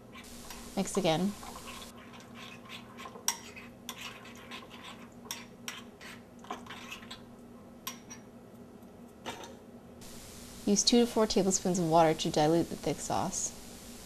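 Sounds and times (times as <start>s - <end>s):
spoon stirring in ceramic bowl: 0.0s - 8.3s.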